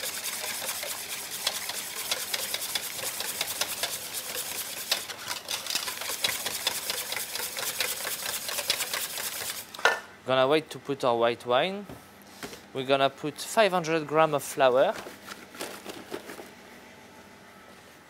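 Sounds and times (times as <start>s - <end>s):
whisk clicking against metal bowl: 0.4s - 9.6s.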